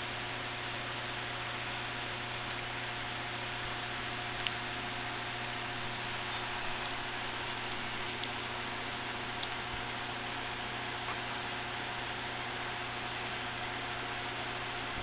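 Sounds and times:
low electrical hum: 0:00.0 - 0:15.0
faint click: 0:04.4 - 0:04.6.

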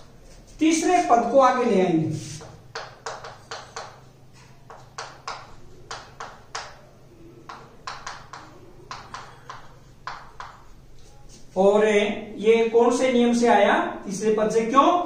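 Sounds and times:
chalk tapping on chalkboard: 0:02.2 - 0:06.8, 0:07.4 - 0:11.4.

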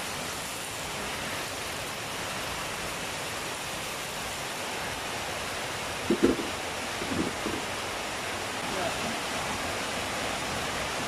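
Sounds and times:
batter sizzling in oil: 0:00.0 - 0:07.9.

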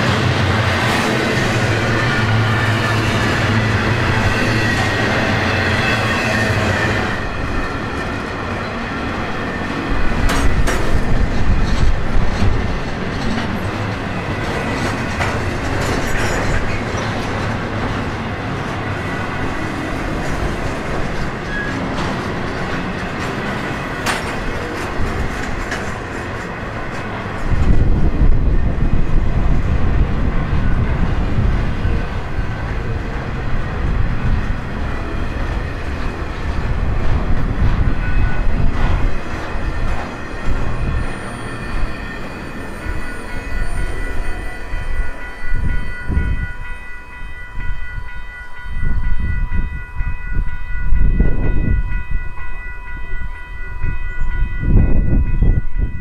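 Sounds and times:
freight train wheels rumbling on rail: 0:00.0 - 0:56.0
wheels clicking over rail joints: 0:10.2 - 0:18.1, 0:20.2 - 0:27.8.

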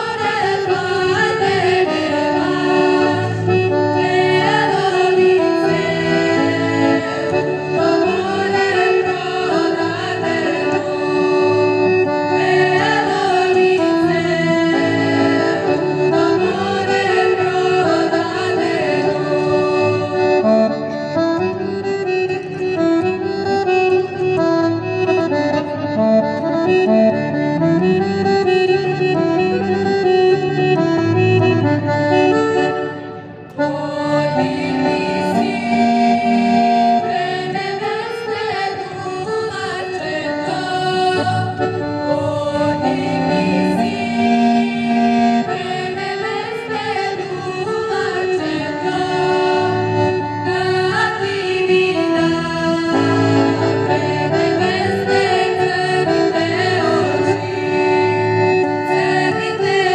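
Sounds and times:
women singing together: 0:00.0 - 0:20.5, 0:33.6 - 0:58.0, 0:58.8 - 0:59.9.

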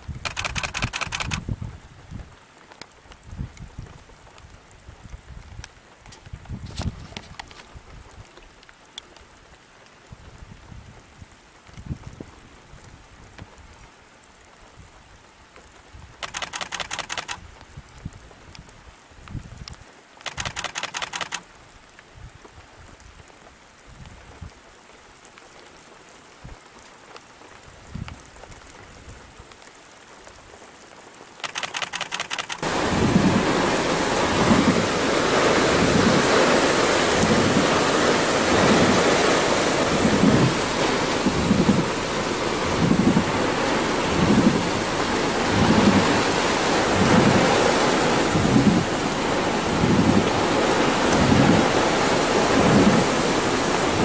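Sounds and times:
rapid crackle: 0:00.0 - 0:01.5, 0:16.2 - 0:17.4, 0:20.2 - 0:21.5, 0:31.4 - 0:35.4
wind gusts: 0:00.0 - 0:02.4, 0:03.2 - 0:08.4, 0:15.9 - 0:18.6, 0:19.2 - 0:21.4, 0:31.4 - 0:54.0
heavy rain: 0:00.0 - 0:54.0
faint thunder rumbles: 0:32.6 - 0:54.0.

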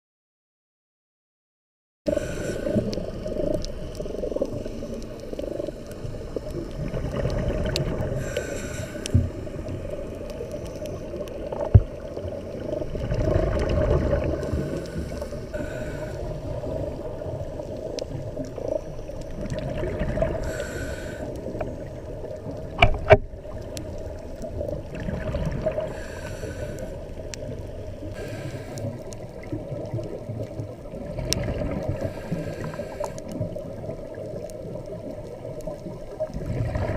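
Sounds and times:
diving regulator hiss: 0:02.1 - 0:03.3, 0:08.1 - 0:11.0, 0:14.3 - 0:16.8, 0:20.2 - 0:21.8, 0:25.8 - 0:27.1, 0:28.0 - 0:29.1, 0:31.9 - 0:33.4
underwater water rumble and bubbles: 0:02.1 - 0:36.9.

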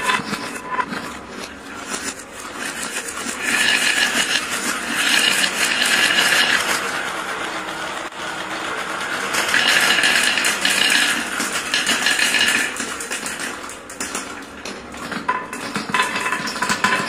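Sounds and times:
marbles rolling on plastic track: 0:01.8 - 0:06.9, 0:09.4 - 0:17.0.

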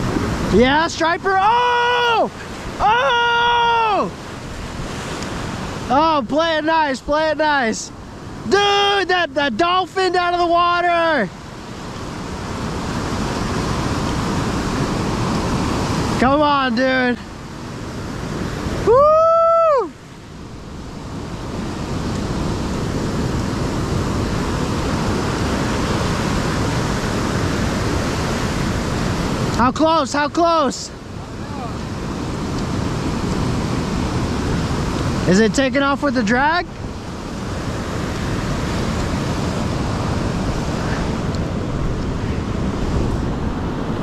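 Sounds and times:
wind rumbling on microphone: 0:00.0 - 0:29.7, 0:30.4 - 0:44.0
ocean surf breaking: 0:00.0 - 0:44.0
high shout: 0:01.3 - 0:04.2, 0:18.8 - 0:20.0.

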